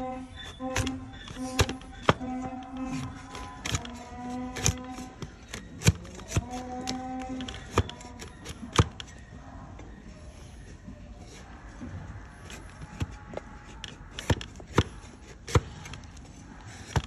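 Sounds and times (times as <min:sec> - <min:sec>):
blade crunching hoof: 0:00.1 - 0:09.0.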